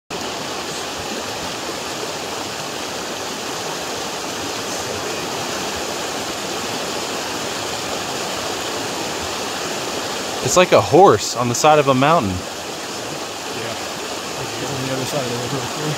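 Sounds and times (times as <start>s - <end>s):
river rushing: 0.1s - 15.9s.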